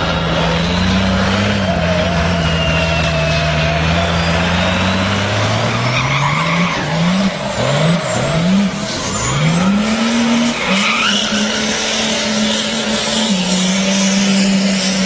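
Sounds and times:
diesel engine revving: 0:00.0 - 0:15.0
tyres skidding: 0:00.0 - 0:15.0
high turbo whistle: 0:01.5 - 0:07.1.

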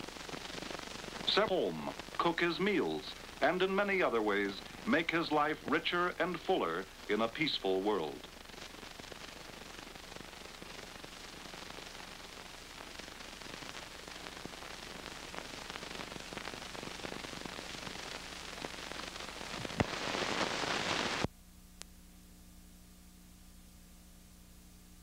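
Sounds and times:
film soundtrack hiss and crackle: 0:00.0 - 0:25.0
faint low hum: 0:21.2 - 0:25.0.

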